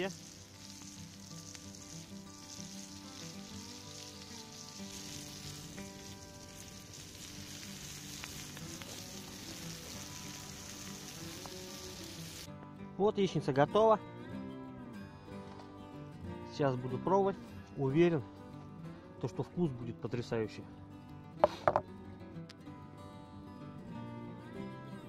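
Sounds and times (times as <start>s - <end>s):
eggs sizzling in a pan: 0.0s - 12.5s.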